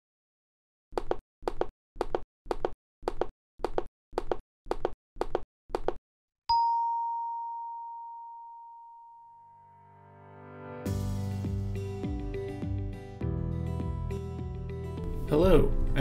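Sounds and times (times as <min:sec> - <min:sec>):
bright ding: 0:06.5 - 0:09.8.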